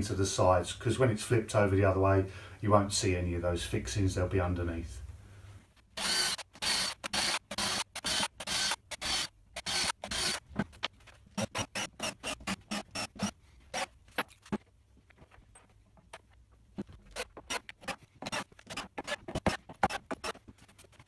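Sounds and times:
cordless drill rasping clicks: 0:06.0 - 0:14.4.

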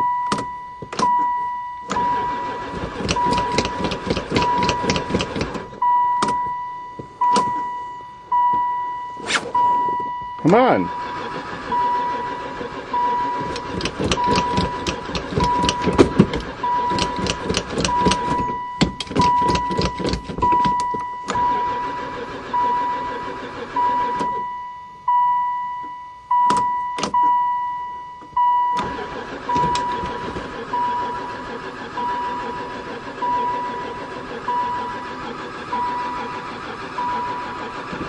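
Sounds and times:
dashboard warning chime: 0:00.0 - 0:38.0
starter cranking engine: 0:01.8 - 0:06.4, 0:10.4 - 0:24.4, 0:28.6 - 0:38.0
clicks: 0:03.0 - 0:07.7.

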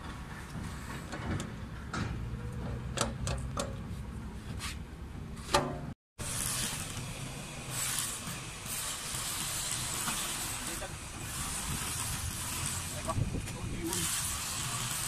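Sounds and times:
rough hiss: 0:06.2 - 0:15.0.

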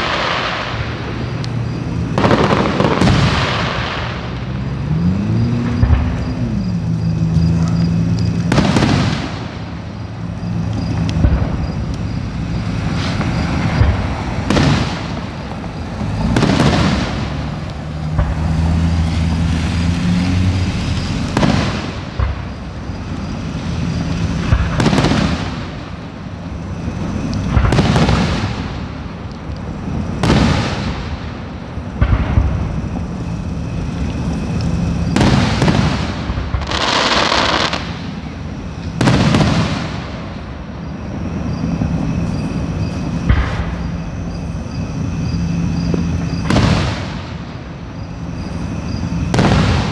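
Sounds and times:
firework booms with echo: 0:02.1 - 0:04.6, 0:08.5 - 0:10.0, 0:11.0 - 0:11.9, 0:12.8 - 0:18.5, 0:21.2 - 0:22.6, 0:24.0 - 0:26.1, 0:27.5 - 0:29.0, 0:30.1 - 0:33.0, 0:35.0 - 0:38.1, 0:39.0 - 0:40.5, 0:43.2 - 0:44.0, 0:46.2 - 0:47.6, 0:49.3 - 0:49.9.

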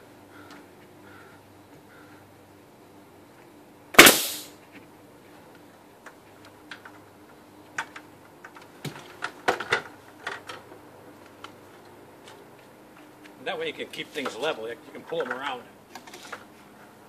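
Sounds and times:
nail gun firing: 0:04.0 - 0:04.5.

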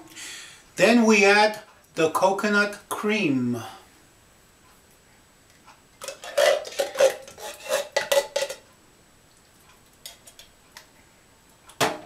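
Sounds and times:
metal spoon clinking and scraping: 0:06.0 - 0:08.6.

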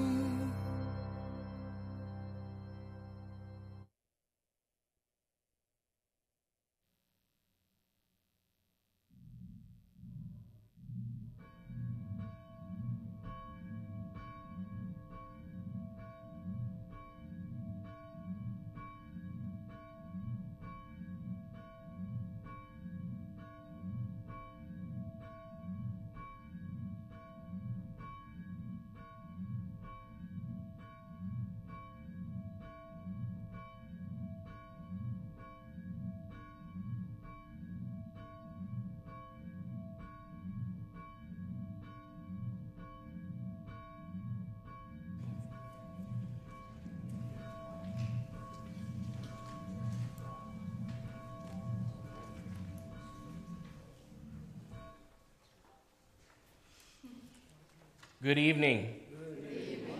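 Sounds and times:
church bell ringing: 0:44.8 - 0:55.2.

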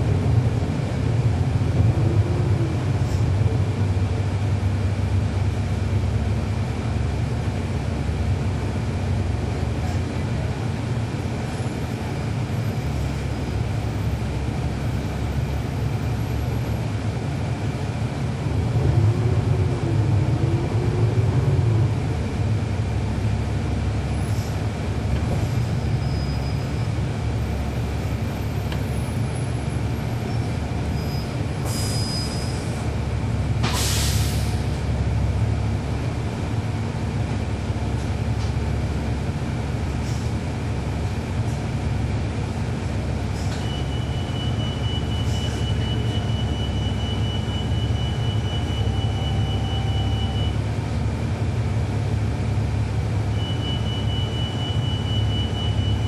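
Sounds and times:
bus engine and road noise drone: 0:00.0 - 0:56.0
air brakes hissing: 0:24.2 - 0:24.7, 0:31.1 - 0:32.9, 0:33.6 - 0:34.8, 0:40.0 - 0:40.4, 0:43.3 - 0:46.4.

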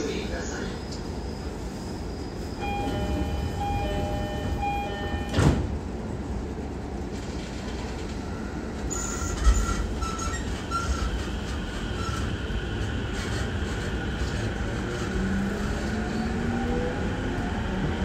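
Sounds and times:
low train rumble: 0:00.0 - 0:18.0
train door chime: 0:02.6 - 0:05.7
sliding doors shutting with thud: 0:05.1 - 0:05.8.

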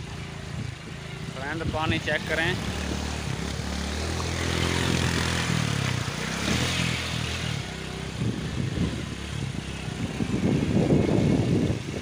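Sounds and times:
motorcycle engine running: 0:00.0 - 0:12.0
water splashing: 0:02.2 - 0:08.0.

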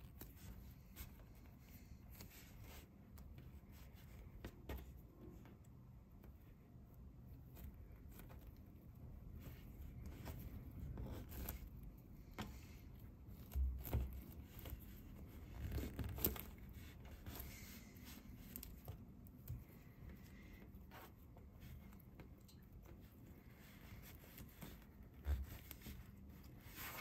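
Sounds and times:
squishy toys rubbing and squeezing: 0:07.1 - 0:22.2, 0:22.9 - 0:27.0.

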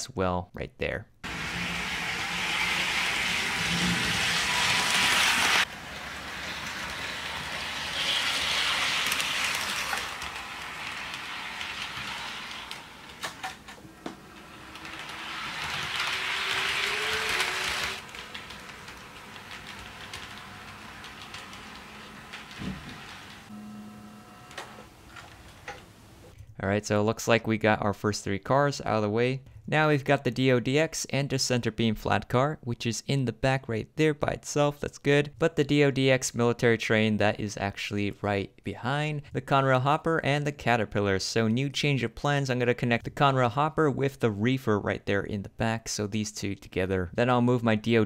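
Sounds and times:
model train rolling: 0:01.2 - 0:26.3.

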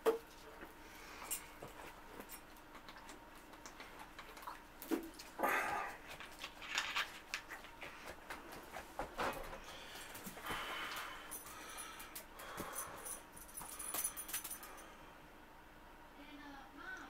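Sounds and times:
man exhaling heavily: 0:05.4 - 0:06.0.

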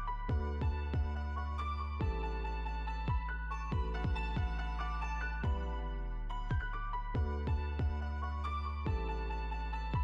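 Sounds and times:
deep kick drum beat: 0:00.3 - 0:01.2, 0:03.1 - 0:04.8, 0:06.5 - 0:08.0.

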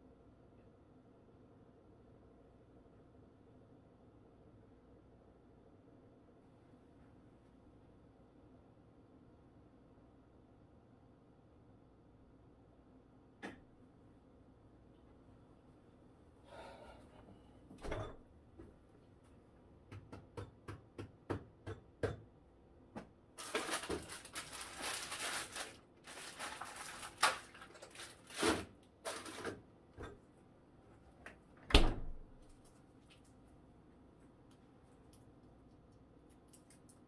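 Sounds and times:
items rustling on fridge shelves: 0:23.4 - 0:37.0
fridge door thud: 0:31.7 - 0:32.3.

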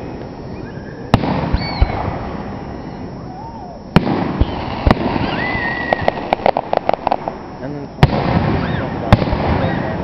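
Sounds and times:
low rumble of bursts: 0:00.0 - 0:10.0
firework booms: 0:01.1 - 0:02.6, 0:03.9 - 0:10.0.

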